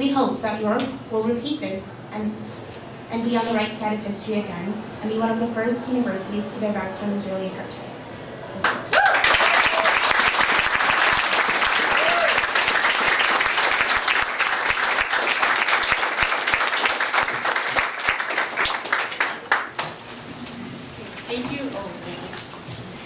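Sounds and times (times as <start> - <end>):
audience applauding: 8.6 - 20.0.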